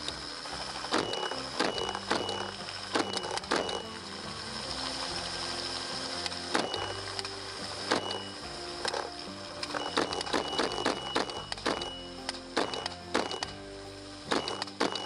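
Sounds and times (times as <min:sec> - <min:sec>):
helicopter running: 0:00.0 - 0:09.1.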